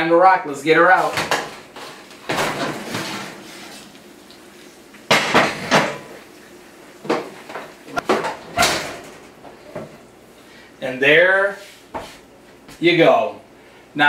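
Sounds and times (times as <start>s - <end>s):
oven door opening with clatter: 2.2s - 3.4s, 7.9s - 9.3s.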